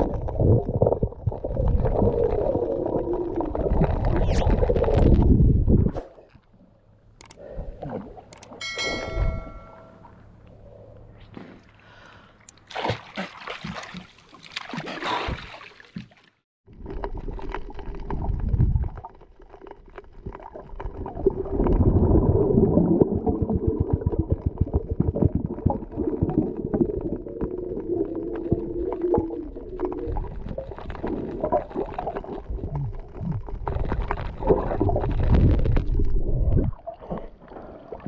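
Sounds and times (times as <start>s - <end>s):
water splashing: 12.6s - 24.4s
muffled underwater water movement: 15.0s - 38.0s.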